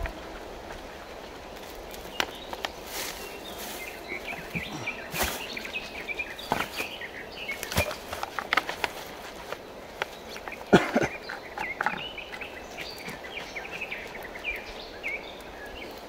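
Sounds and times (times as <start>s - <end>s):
bird chirps: 2.1s - 8.3s, 10.0s - 16.0s.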